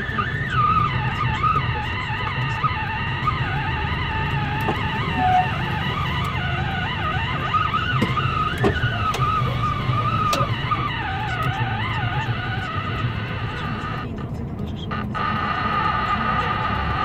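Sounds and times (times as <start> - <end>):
truck engine and tyres rumbling: 0.0 - 17.0
wind whistling: 2.3 - 13.2.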